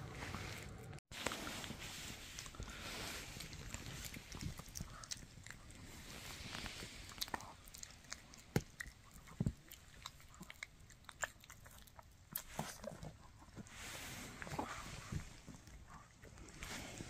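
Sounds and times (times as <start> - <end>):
dog gnawing on a chew: 2.2 - 13.7.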